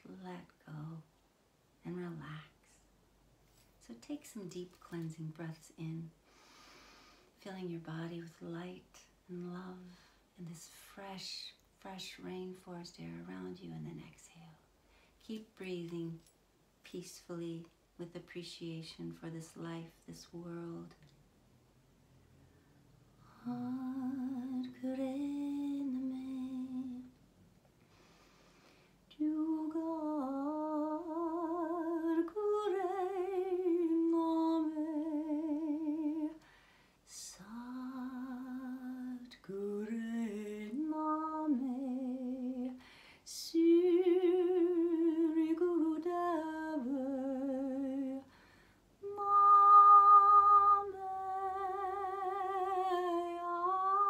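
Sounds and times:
woman singing wordless melody: 0:23.2 - 0:27.2, 0:29.1 - 0:36.5, 0:37.1 - 0:48.3, 0:49.0 - 0:54.0.

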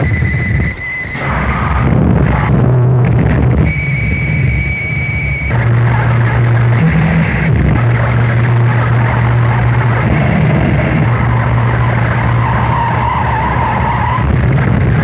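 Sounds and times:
distorted noise music: 0:00.0 - 0:15.0
low hum: 0:00.0 - 0:15.0
wavering high squeal: 0:09.7 - 0:14.4.

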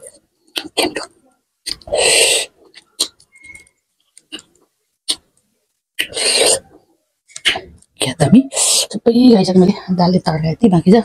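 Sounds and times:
mouth smacking: 0:00.0 - 0:05.4, 0:06.0 - 0:09.0
lip and tongue clicks: 0:00.5 - 0:01.9, 0:02.6 - 0:05.4.

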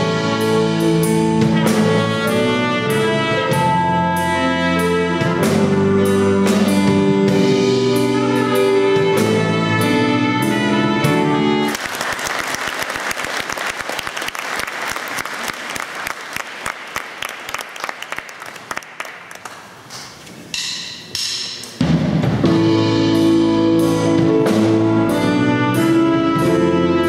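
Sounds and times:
band playing music: 0:00.0 - 0:12.9, 0:21.8 - 0:27.0
audience applauding: 0:11.7 - 0:19.9.

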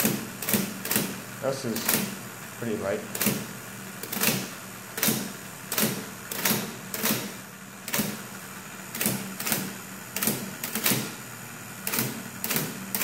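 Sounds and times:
typewriter typebar strikes: 0:00.0 - 0:02.2, 0:04.0 - 0:08.2
typewriter motor hum: 0:00.0 - 0:13.0.

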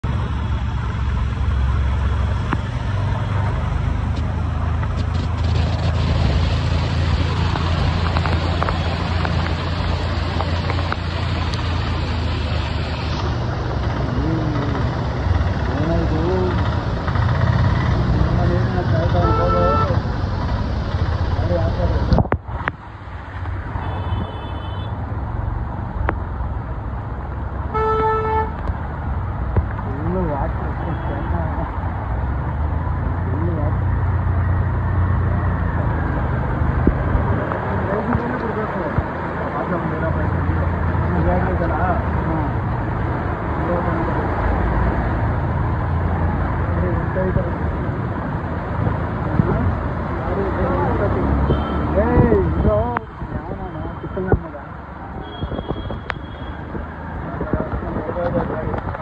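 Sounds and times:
low engine drone: 0:00.0 - 0:22.2
cars driving through water: 0:00.0 - 0:24.2, 0:28.6 - 0:55.1
low traffic rumble: 0:00.0 - 0:59.0
heavy rain hissing on road: 0:00.2 - 0:17.1, 0:37.1 - 0:45.0
heavy rain hiss: 0:04.9 - 0:14.2
car horn toot: 0:23.8 - 0:25.0, 0:27.7 - 0:28.6.

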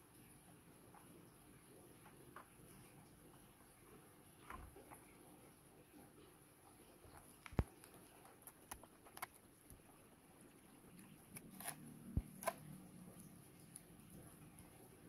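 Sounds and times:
plastic packaging clicks and crinkles: 0:07.3 - 0:09.8.

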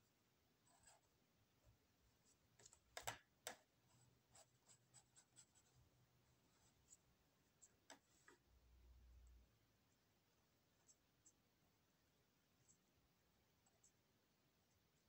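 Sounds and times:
pen scratching and tapping on paper: 0:02.6 - 0:03.8, 0:07.6 - 0:08.4.

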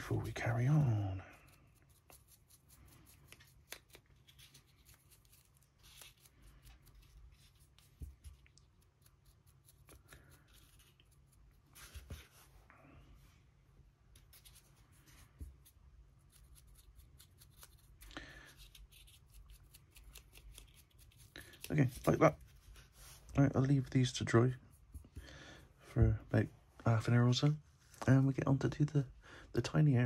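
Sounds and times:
paintbrush scratching: 0:00.0 - 0:12.6, 0:14.1 - 0:25.2.

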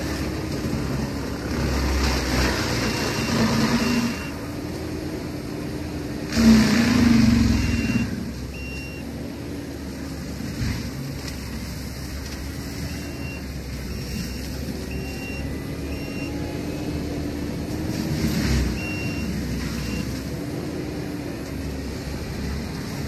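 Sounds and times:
short high beeps: 0:02.9 - 0:04.4, 0:07.6 - 0:09.1, 0:12.8 - 0:16.5, 0:18.7 - 0:20.1.

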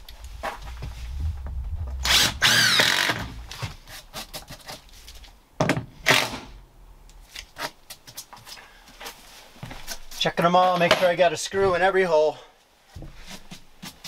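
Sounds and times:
cordless drill driving screws: 0:02.0 - 0:03.3.

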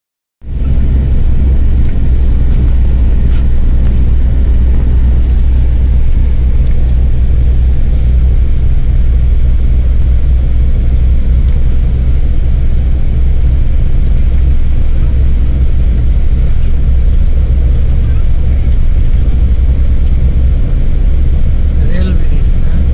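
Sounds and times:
vehicle cabin road rumble: 0:00.4 - 0:22.9.

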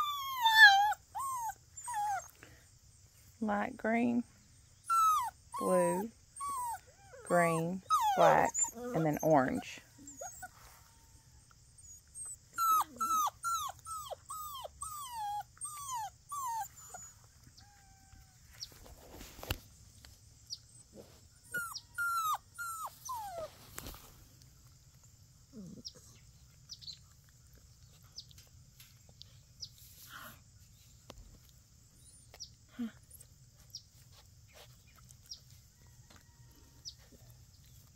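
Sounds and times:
puppies whining: 0:00.0 - 0:02.6, 0:04.8 - 0:18.8, 0:20.7 - 0:23.6, 0:25.5 - 0:27.2.

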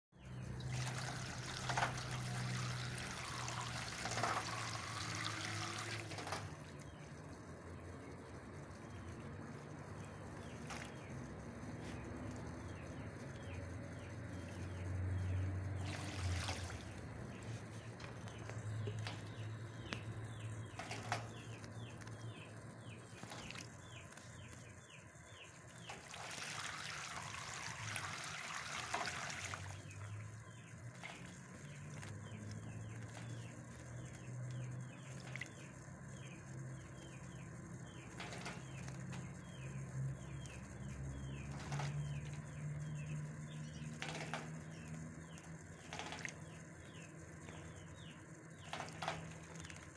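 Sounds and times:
small birds chirping: 0:00.2 - 0:49.9
bird splashing in water: 0:15.8 - 0:17.0, 0:25.9 - 0:30.0.

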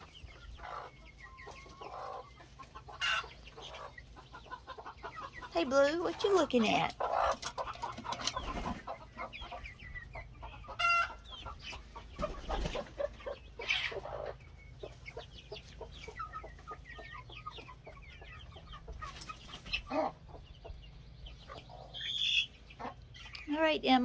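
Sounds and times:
chicks peeping and clucking: 0:00.0 - 0:24.0.

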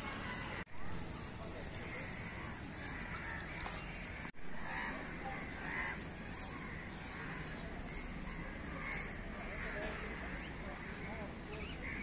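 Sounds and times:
outdoor background hiss: 0:00.0 - 0:12.0
crows cawing: 0:01.8 - 0:11.1.

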